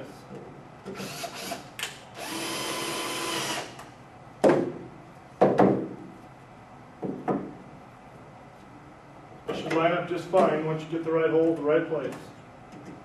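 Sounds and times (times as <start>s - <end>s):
cordless drill whirring: 1.0s - 3.8s.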